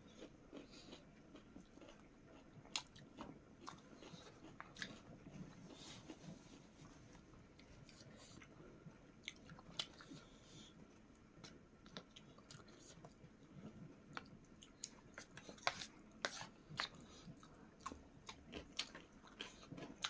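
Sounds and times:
chewing and mouth smacks: 0:00.2 - 0:06.2, 0:14.1 - 0:20.0.

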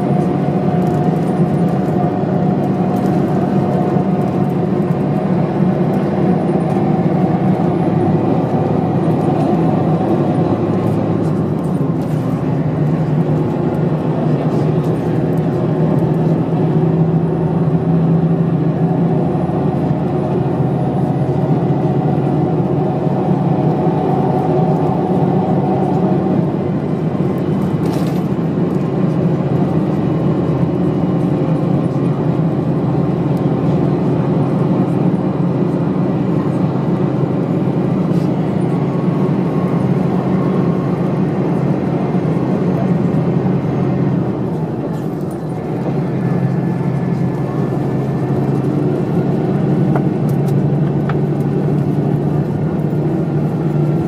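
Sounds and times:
bus engine hum: 0:00.0 - 0:54.0
road and tyre noise: 0:00.0 - 0:54.0.

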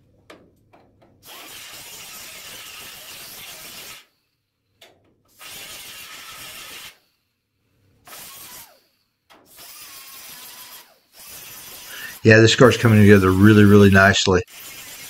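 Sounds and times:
angle grinder grinding metal: 0:01.2 - 0:04.1, 0:05.3 - 0:07.0, 0:08.1 - 0:08.8, 0:09.5 - 0:15.0.

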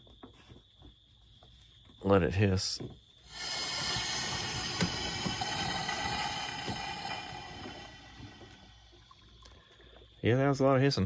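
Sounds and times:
pressure hissing from coolant cap: 0:03.3 - 0:09.1.

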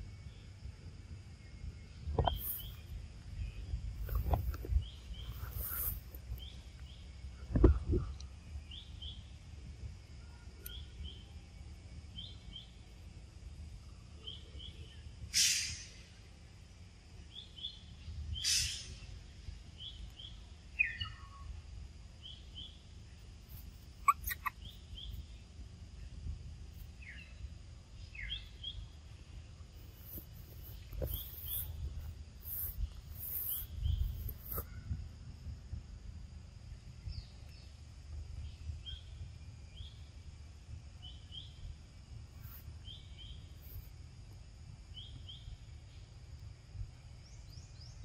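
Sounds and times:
brief hissing bursts: 0:05.2 - 0:06.2, 0:15.3 - 0:16.0, 0:18.4 - 0:19.0
faint steady high tone: 0:10.0 - 0:12.9
short double chirp: 0:24.0 - 0:24.6.

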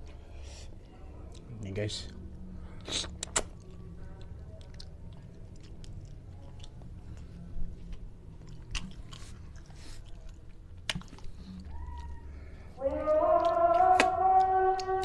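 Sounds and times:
sharp mouth clicks: 0:02.8 - 0:03.7
wet chewing and sucking: 0:02.8 - 0:15.0.

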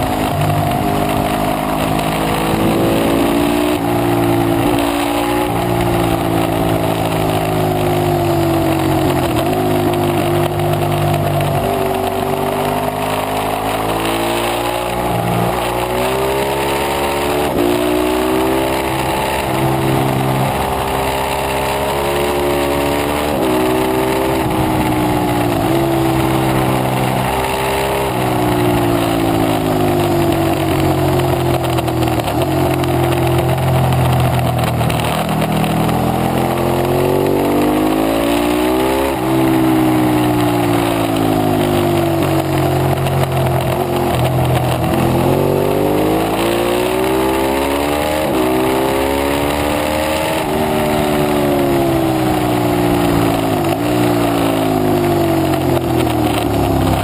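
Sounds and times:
motorcycle engine revving: 0:00.0 - 0:57.0.

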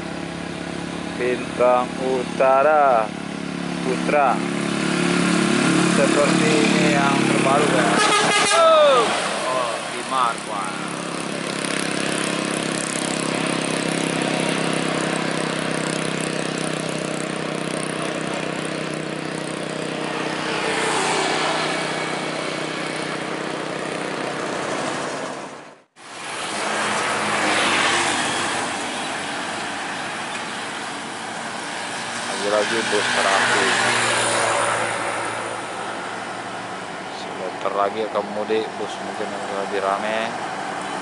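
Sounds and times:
bus diesel engine passing: 0:00.0 - 0:41.0
road traffic passing: 0:00.0 - 0:41.0
tyre and road noise: 0:00.0 - 0:41.0.

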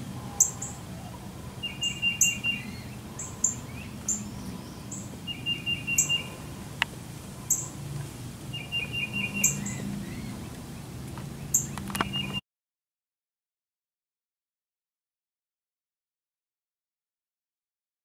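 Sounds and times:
birds chirping: 0:00.0 - 0:12.4
low steady hum: 0:00.0 - 0:12.4
bird trill: 0:00.1 - 0:06.5, 0:07.5 - 0:07.8, 0:08.5 - 0:10.4, 0:11.4 - 0:12.4.

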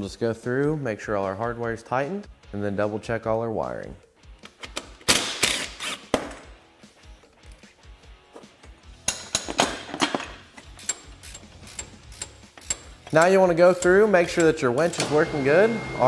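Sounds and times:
faint background music: 0:00.0 - 0:16.0
hand tools clicking on metal: 0:09.0 - 0:15.1.

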